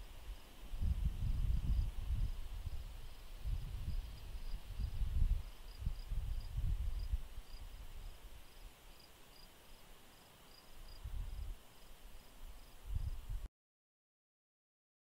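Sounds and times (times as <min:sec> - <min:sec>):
insects chirping: 0:01.6 - 0:13.2.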